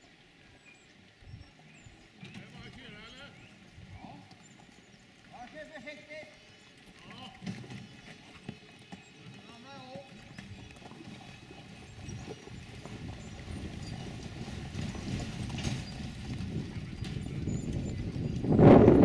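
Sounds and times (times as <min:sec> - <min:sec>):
cart wheels rumbling: 0:00.0 - 0:19.0
hooves clip-clopping on dirt: 0:00.0 - 0:19.0.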